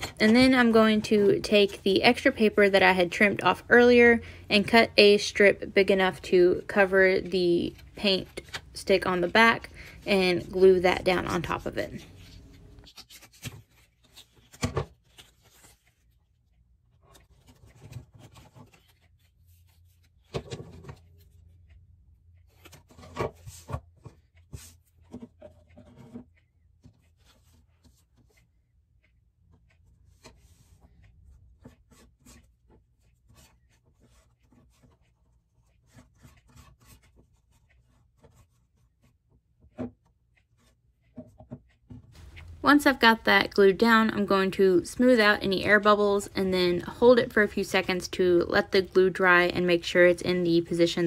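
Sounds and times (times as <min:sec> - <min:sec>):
paper rustling: 0:11.3 - 0:16.3, 0:16.9 - 0:21.4.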